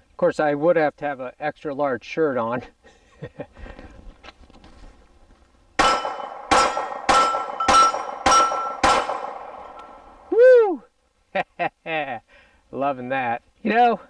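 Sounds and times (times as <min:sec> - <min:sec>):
pistol shots: 0:05.8 - 0:10.2
steel target ringing: 0:05.8 - 0:10.3.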